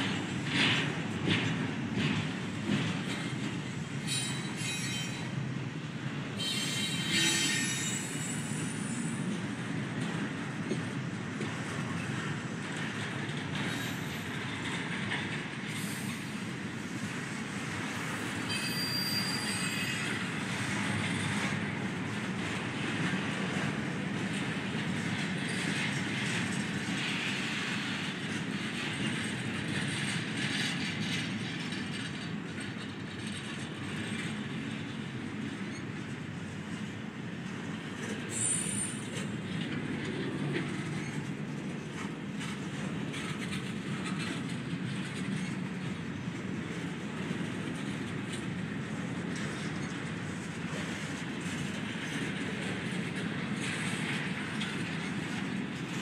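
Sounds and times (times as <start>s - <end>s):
train wheels rumbling on rail: 0.0s - 56.0s
high-pitched wheel squeals: 4.0s - 5.3s, 6.4s - 9.2s, 18.5s - 20.2s, 38.3s - 39.0s.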